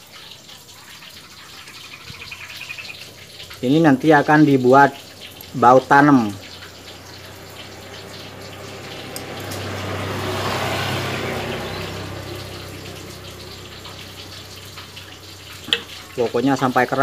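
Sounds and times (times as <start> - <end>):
vehicle engine passing by: 3.7 - 16.2.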